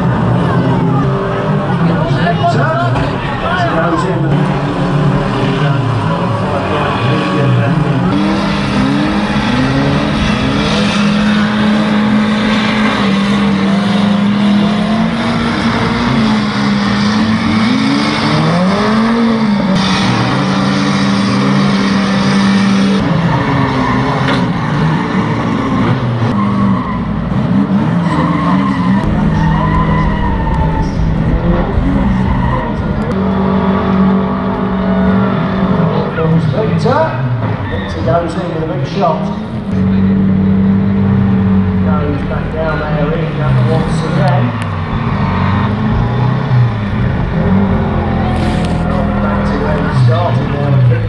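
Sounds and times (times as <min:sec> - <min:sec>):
tyres skidding on dirt: 0:00.0 - 0:40.0
race car engines revving: 0:00.0 - 0:51.0.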